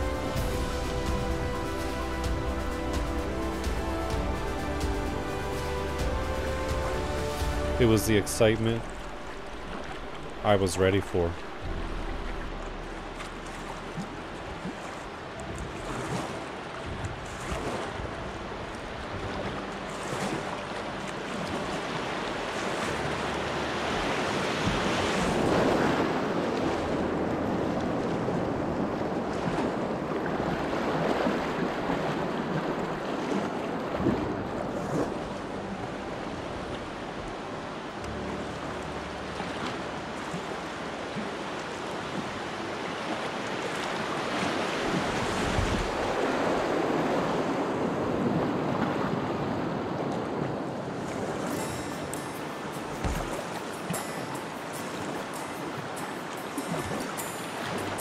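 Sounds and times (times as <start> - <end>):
whitewater rushing: 0.0 - 58.0
sharp hits: 51.5 - 58.0.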